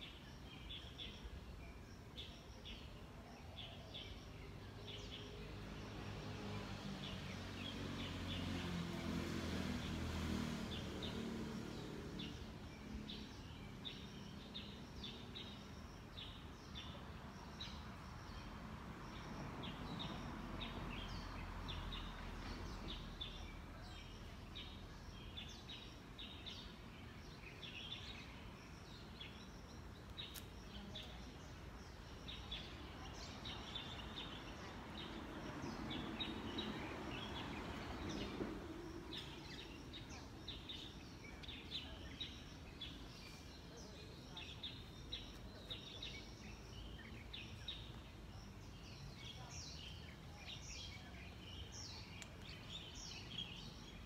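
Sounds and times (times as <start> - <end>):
faint outdoor background noise: 0.0 - 54.0
passing vehicle rumble: 5.4 - 14.0, 31.5 - 43.8
birds chirping: 10.6 - 54.0.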